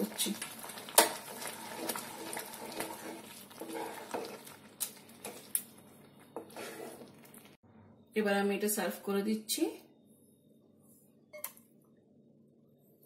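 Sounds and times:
spatula stirring thick food: 0.1s - 7.6s.

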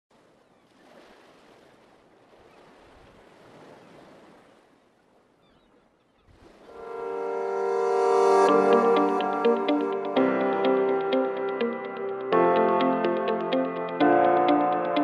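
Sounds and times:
soft wash of waves: 0.1s - 15.0s
music: 6.7s - 15.0s.

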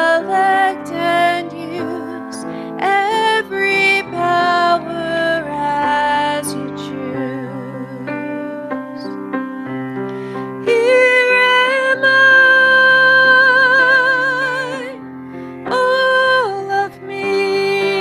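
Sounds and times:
woman singing a hymn: 0.0s - 9.2s, 10.6s - 15.0s, 15.6s - 18.0s
grand piano accompaniment: 0.0s - 18.0s.

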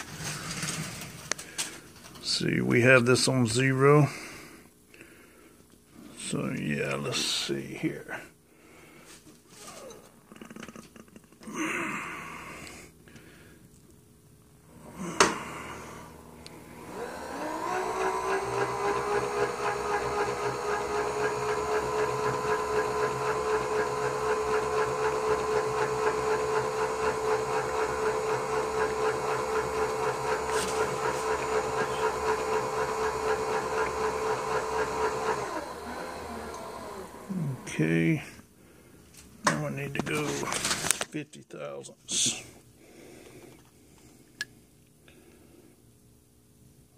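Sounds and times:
milling machine spindle whine: 15.9s - 37.9s.

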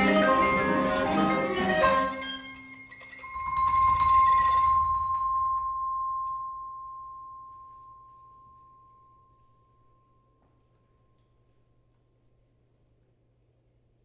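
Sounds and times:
high metallic percussion note: 0.0s - 9.6s.

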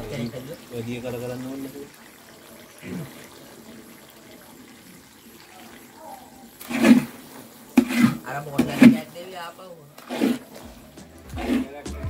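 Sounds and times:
mixture sloshing in a wok: 6.6s - 9.1s, 9.9s - 11.8s.

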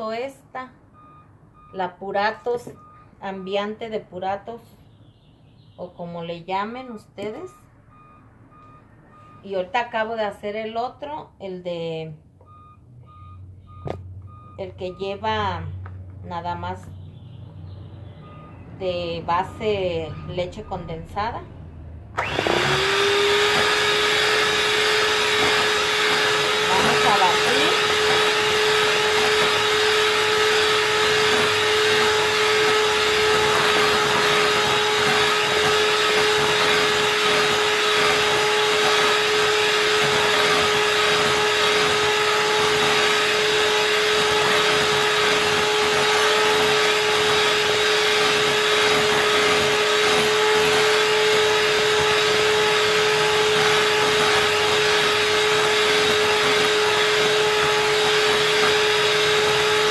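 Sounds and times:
electric hand mixer whirring: 22.2s - 59.9s.

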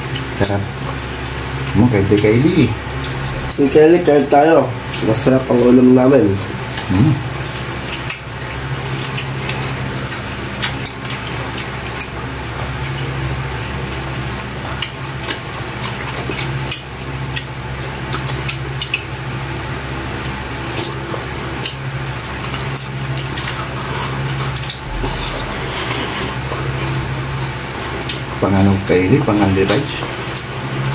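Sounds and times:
steady low hum: 0.0s - 30.9s
wet chewing and lip smacking: 6.5s - 13.2s, 13.8s - 28.3s, 30.0s - 30.9s.

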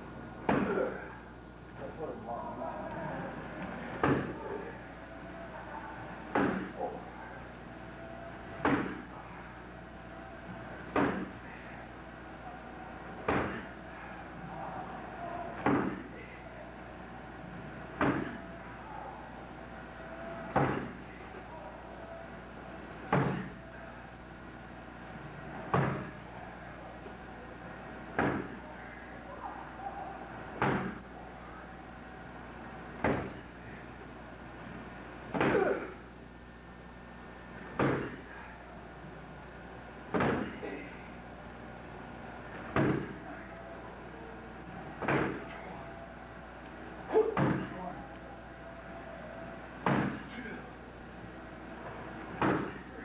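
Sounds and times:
strikes smacking a pad: 6.3s - 6.7s, 8.6s - 9.0s, 11.0s - 11.3s, 13.3s - 13.6s, 15.6s - 16.0s, 18.0s - 18.4s, 20.5s - 20.9s, 23.1s - 23.5s, 25.7s - 26.1s, 28.2s - 28.5s, 30.6s - 31.0s, 33.0s - 33.4s, 35.3s - 35.8s, 37.8s - 38.2s, 40.1s - 40.6s, 42.7s - 43.2s, 45.0s - 45.4s, 47.4s - 47.7s, 49.8s - 50.2s, 52.4s - 52.8s.

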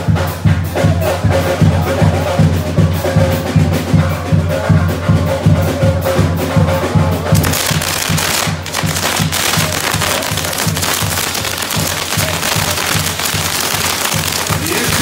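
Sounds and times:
band music with low beat: 0.0s - 15.0s
fireworks hissing and crackling: 7.4s - 15.0s.

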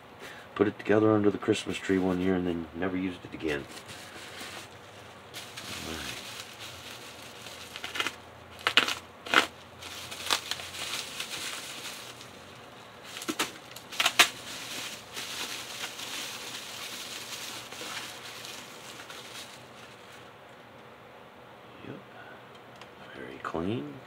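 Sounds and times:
bubble wrap crinkling: 3.3s - 20.4s
bubble wrap snaps: 5.4s - 12.3s, 13.0s - 19.7s.

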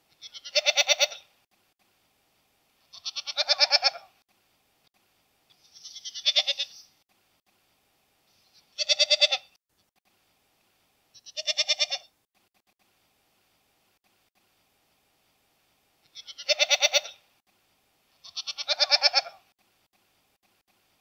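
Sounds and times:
goat bleating: 0.2s - 1.3s, 2.9s - 4.1s, 5.5s - 6.9s, 8.5s - 9.6s, 11.2s - 12.1s, 16.0s - 17.2s, 18.2s - 19.4s.

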